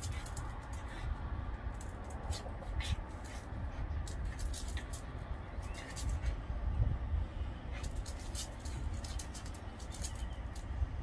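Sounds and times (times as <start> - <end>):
dogs scuffling: 1.7 - 6.4, 7.8 - 10.6.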